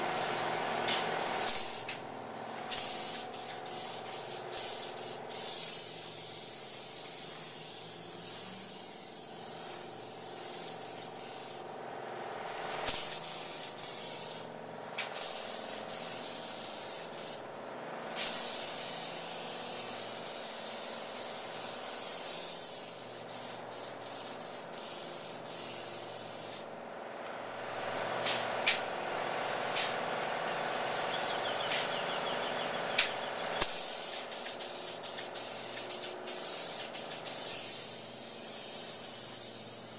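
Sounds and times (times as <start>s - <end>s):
spray gun hissing: 0.0s - 2.0s, 2.6s - 11.9s, 12.6s - 17.5s, 18.1s - 26.7s, 27.5s - 39.9s
steady hum: 26.2s - 36.4s
sharp clicks: 31.6s - 32.0s.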